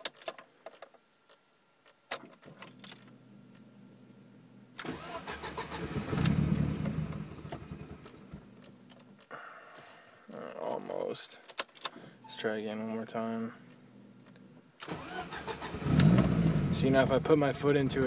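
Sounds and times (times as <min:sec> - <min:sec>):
faint low hum: 0:00.0 - 0:04.8, 0:06.3 - 0:15.0
car engine cranking and stalling: 0:04.8 - 0:09.0, 0:14.2 - 0:18.0.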